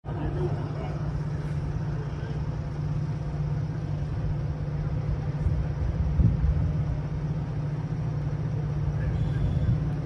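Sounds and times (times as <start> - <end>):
diesel locomotive engine droning: 0.0 - 10.0.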